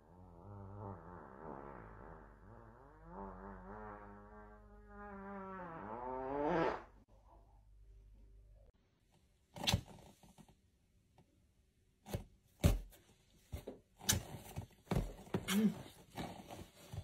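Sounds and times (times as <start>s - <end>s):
buzzy wavering fart: 0.0s - 7.0s.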